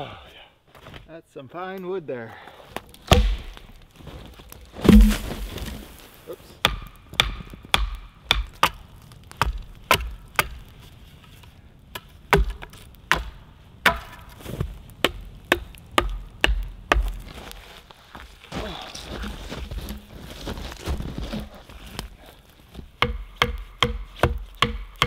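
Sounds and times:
axe chopping log: 3.0 - 3.8, 4.8 - 5.8, 6.6 - 8.8, 9.4 - 10.6, 11.9 - 14.3, 15.0 - 17.2, 23.0 - 25.0.

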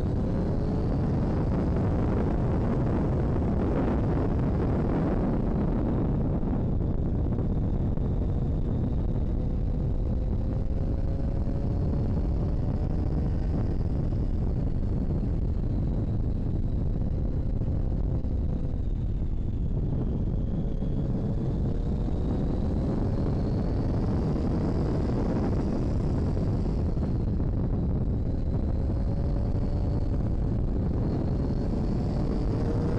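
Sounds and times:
wind rush on microphone: 0.0 - 32.9
motorcycle engine running: 7.4 - 32.9.

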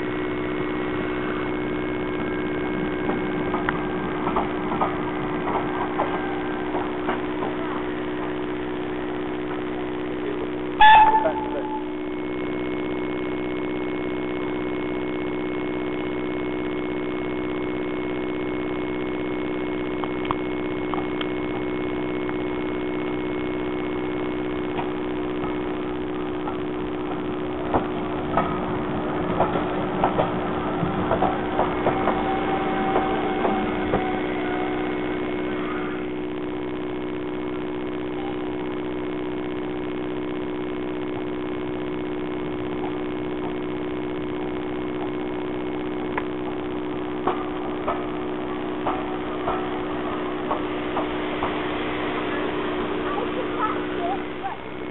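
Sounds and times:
steady hum: 0.0 - 54.9
train clattering on track: 2.6 - 8.4, 26.4 - 35.0, 47.2 - 54.5
steam locomotive whistle: 10.8 - 12.0, 31.3 - 36.1.

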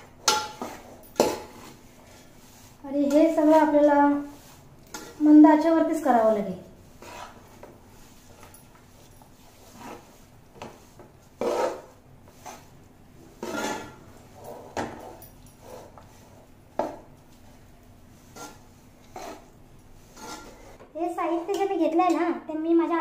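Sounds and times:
spoon scraping metal pot: 3.1 - 5.4, 6.9 - 8.4, 11.4 - 16.0, 18.2 - 20.8.

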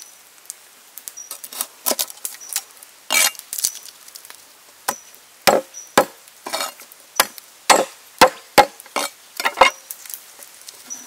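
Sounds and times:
cleaver chopping on wooden board: 4.9 - 6.2, 7.2 - 9.8.

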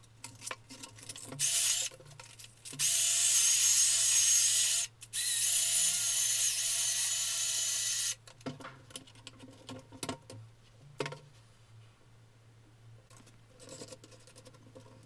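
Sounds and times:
power drill whirring: 1.4 - 1.9, 2.8 - 8.2.

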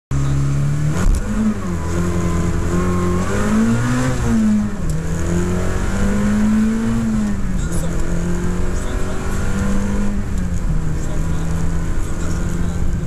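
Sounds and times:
car engine accelerating: 0.1 - 13.0.

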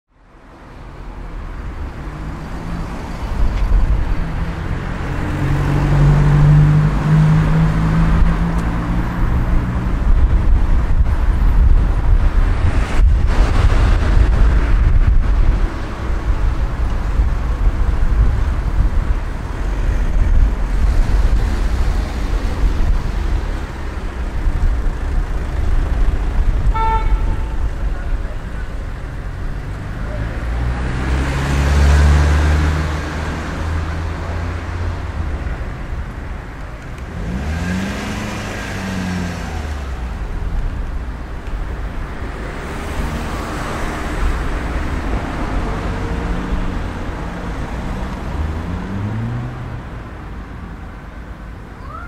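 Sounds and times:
cars passing: 0.2 - 52.0
car horn toot: 26.6 - 27.8.

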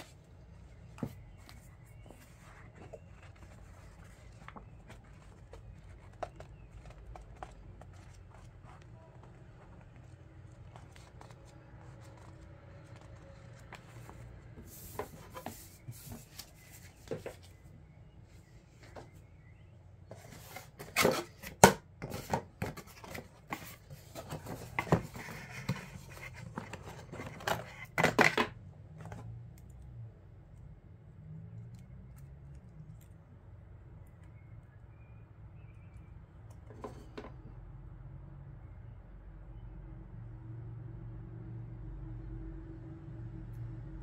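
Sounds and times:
packaging rustling and scraping: 0.0 - 17.6, 20.1 - 28.4.

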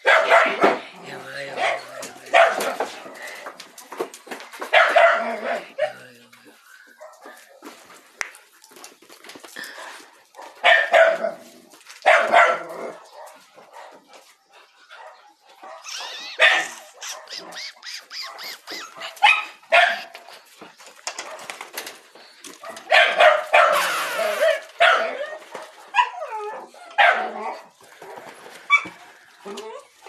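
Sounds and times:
dogs barking: 0.0 - 0.8, 1.5 - 3.0, 4.6 - 6.0, 10.3 - 14.3, 14.9 - 20.4, 21.2 - 21.6, 22.6 - 27.7
dog yips and whines: 15.7 - 20.2, 23.5 - 27.4.

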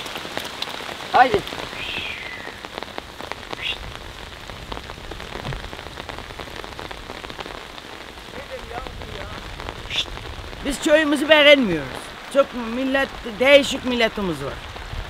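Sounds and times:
steady rain falling: 0.0 - 15.0
brief high-pitched calls: 1.7 - 2.6, 3.6 - 3.8.

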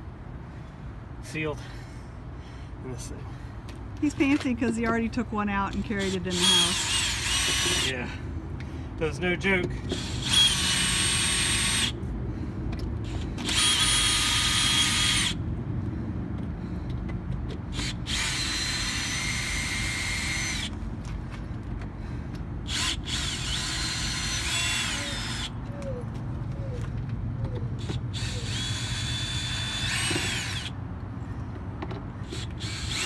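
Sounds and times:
cordless drill motor whining: 5.5 - 8.2, 9.1 - 15.4, 17.6 - 20.8, 22.6 - 25.6, 27.7 - 30.8, 32.2 - 33.0.

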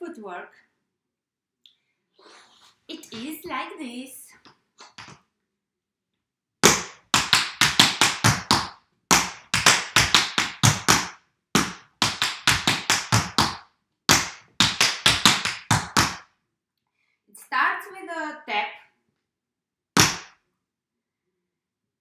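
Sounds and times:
tap shoes on wooden floor: 6.6 - 16.2.

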